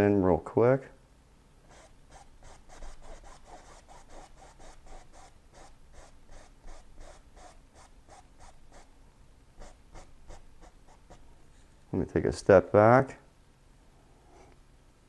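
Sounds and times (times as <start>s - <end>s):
paintbrush scrubbing on canvas: 1.7s - 8.9s.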